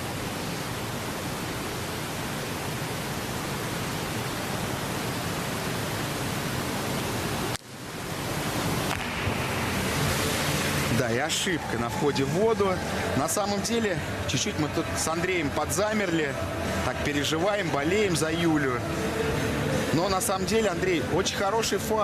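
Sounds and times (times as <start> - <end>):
water spray hissing: 8.2 - 13.2.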